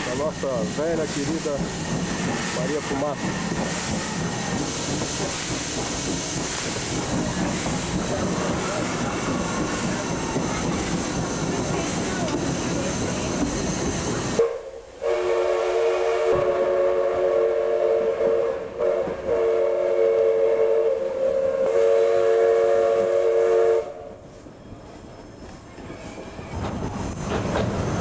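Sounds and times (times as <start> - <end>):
train running noise: 0.0 - 28.0
steam locomotive chime whistle: 14.3 - 26.6.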